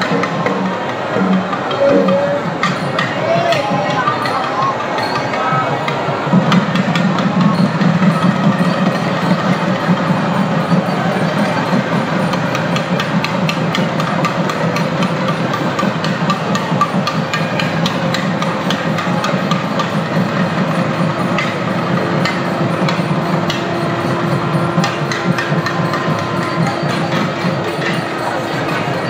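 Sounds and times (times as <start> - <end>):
cymbal strokes: 0.0 - 5.3
held note: 0.0 - 5.5, 21.3 - 29.0
crowd din: 0.0 - 29.0
drum strokes: 0.0 - 29.0.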